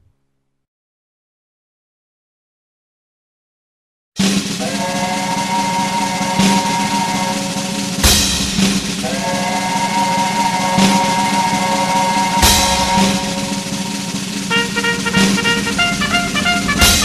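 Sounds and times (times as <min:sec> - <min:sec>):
instrumental intro music: 0:04.2 - 0:17.0
loud hits: 0:04.2 - 0:17.0.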